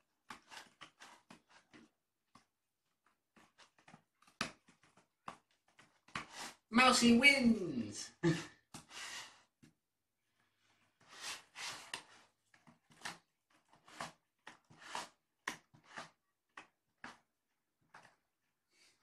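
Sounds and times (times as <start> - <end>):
kitten scratching cardboard: 0.0 - 6.7, 10.8 - 18.2.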